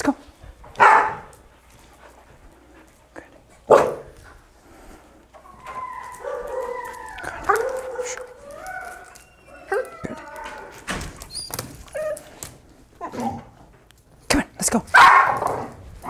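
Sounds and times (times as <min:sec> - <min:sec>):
puppy whining and howling: 0:05.4 - 0:12.4.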